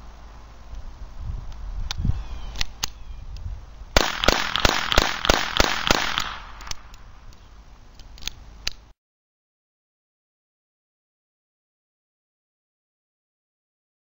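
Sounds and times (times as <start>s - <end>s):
pistol shots: 4.0s - 6.9s.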